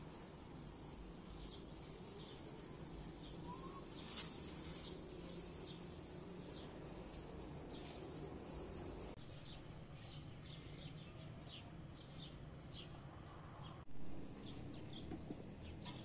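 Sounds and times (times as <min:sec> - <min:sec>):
plastic bag rustle: 0:00.0 - 0:09.2
bird chirps: 0:03.2 - 0:05.9.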